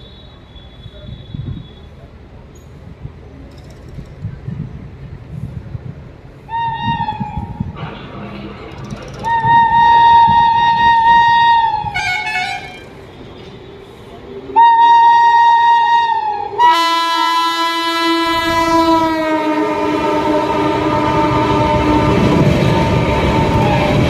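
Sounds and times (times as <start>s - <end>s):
train rumble: 0.0s - 24.0s
locomotive high whine: 6.4s - 24.0s
locomotive horn blasts: 9.2s - 13.0s, 14.6s - 24.0s.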